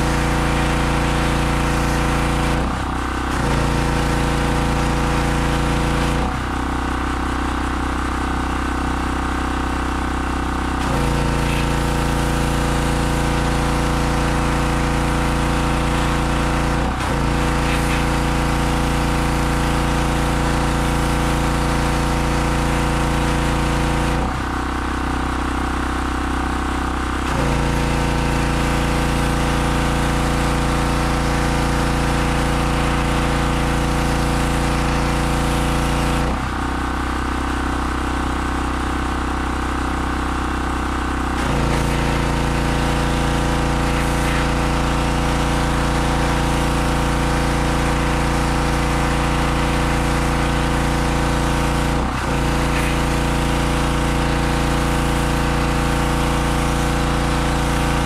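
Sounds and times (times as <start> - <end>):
pressure washer engine running: 0.0 - 58.0
water jet spraying: 41.6 - 58.0.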